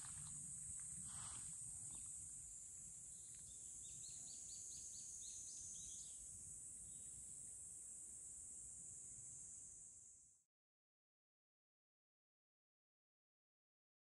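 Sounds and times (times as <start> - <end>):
steady high-pitched hiss: 0.0 - 10.5.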